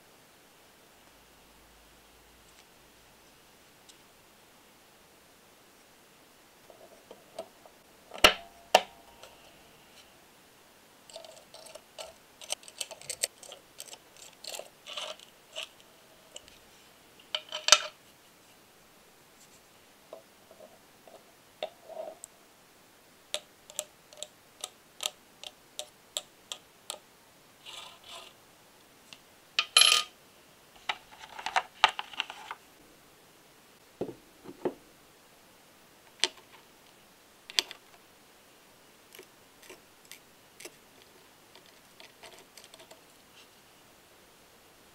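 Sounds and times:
metal parts scraping: 0:11.1 - 0:16.4
metal parts clicking: 0:11.1 - 0:16.5.

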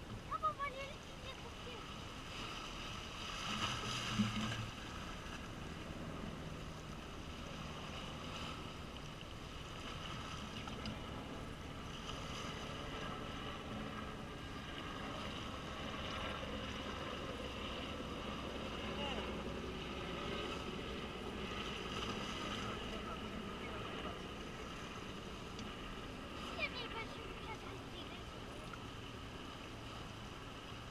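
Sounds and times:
waves splashing against rocks: 0:00.0 - 0:05.8.

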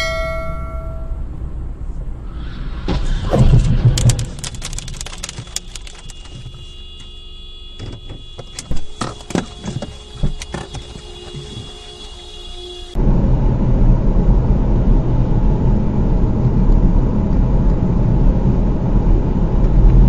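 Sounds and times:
faint steady tone: 0:00.0 - 0:01.4
low rumble: 0:00.0 - 0:05.2, 0:13.0 - 0:20.0
car crash impacts: 0:02.8 - 0:06.7.

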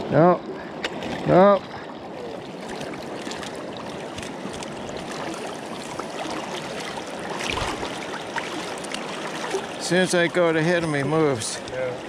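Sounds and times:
river current running: 0:00.0 - 0:12.0
fish thrashing and splashing: 0:02.3 - 0:09.8.

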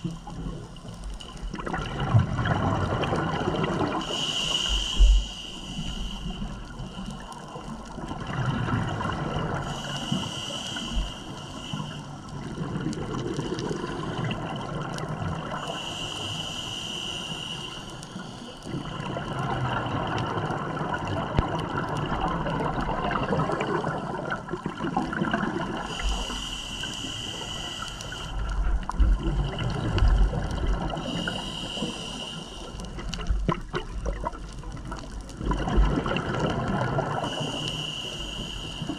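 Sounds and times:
gurgle of exhaled bubbles: 0:00.0 - 0:04.2, 0:07.1 - 0:09.8, 0:12.3 - 0:15.7, 0:18.7 - 0:26.3, 0:28.2 - 0:32.0, 0:32.8 - 0:37.6
regulator inhalation hiss: 0:04.0 - 0:07.6, 0:09.6 - 0:12.4, 0:15.6 - 0:18.6, 0:25.8 - 0:30.1, 0:30.8 - 0:33.3, 0:37.2 - 0:38.9.

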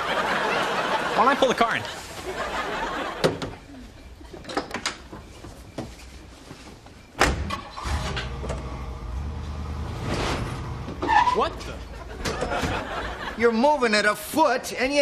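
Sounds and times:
car engine rumbling: 0:07.6 - 0:13.3.

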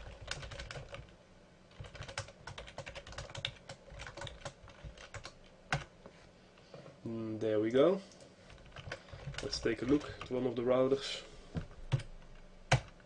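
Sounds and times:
computer keyboard typing: 0:00.0 - 0:01.1, 0:01.7 - 0:05.9, 0:08.5 - 0:10.4, 0:11.9 - 0:13.0.

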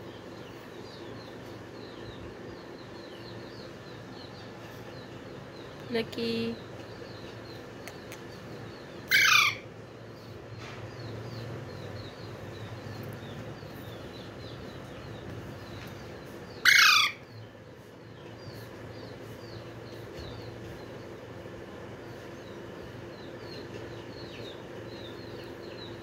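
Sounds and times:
parakeet screeching: 0:09.1 - 0:09.6, 0:16.6 - 0:17.3.

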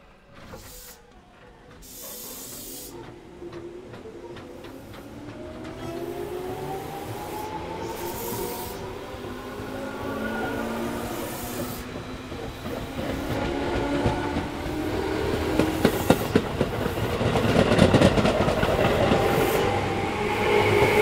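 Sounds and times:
electric train rolling past: 0:00.0 - 0:21.0
wheels clacking over rail joints: 0:00.2 - 0:06.9, 0:11.5 - 0:21.0.

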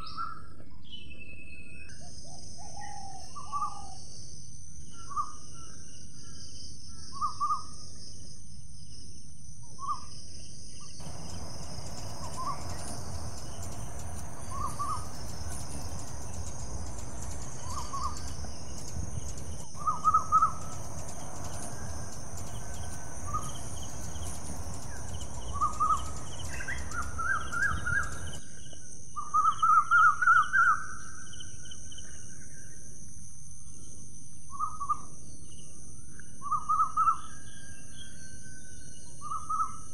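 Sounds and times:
insect drone: 0:10.9 - 0:29.7
low rumble: 0:11.0 - 0:28.4
short bird calls: 0:11.0 - 0:28.4.

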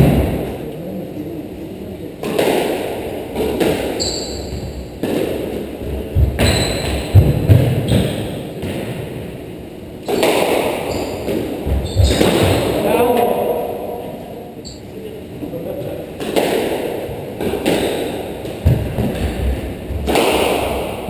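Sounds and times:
ball thudding against walls: 0:02.2 - 0:09.2, 0:10.0 - 0:12.8, 0:16.2 - 0:21.0
squash ball cracking off rackets: 0:02.2 - 0:09.2, 0:10.0 - 0:12.8, 0:16.2 - 0:21.0
shoes squeaking on wooden floor: 0:04.0 - 0:04.8, 0:06.2 - 0:08.3, 0:10.9 - 0:12.8.

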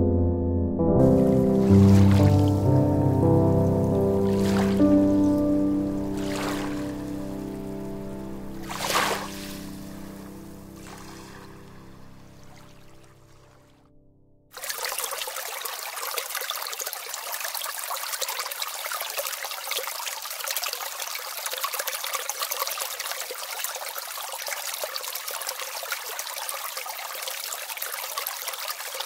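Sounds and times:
water trickling over stones: 0:01.6 - 0:02.7, 0:04.3 - 0:05.1, 0:05.9 - 0:11.6, 0:14.5 - 0:29.0.

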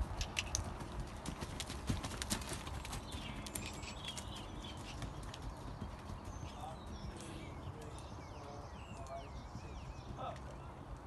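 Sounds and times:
horse hoofbeats: 0:00.0 - 0:08.0.

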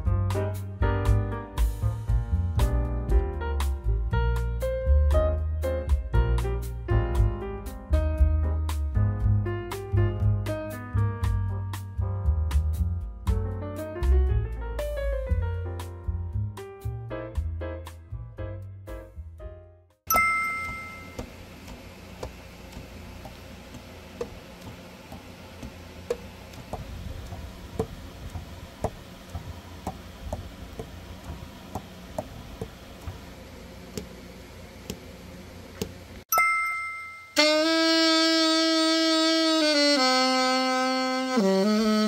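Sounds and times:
chime: 0:20.1 - 0:21.3, 0:36.3 - 0:37.4
saxophone pads tapping shut: 0:20.6 - 0:33.2
saxophone long held notes: 0:37.4 - 0:42.0.

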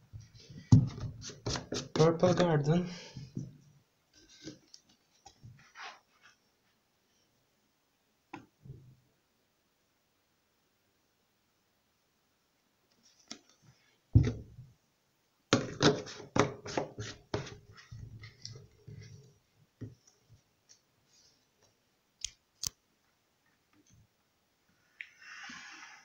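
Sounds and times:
plastic bottle set down thump: 0:14.2 - 0:14.5.

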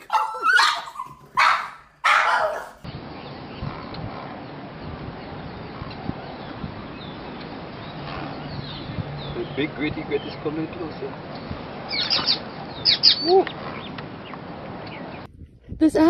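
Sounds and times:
dog barking: 0:00.0 - 0:02.8.

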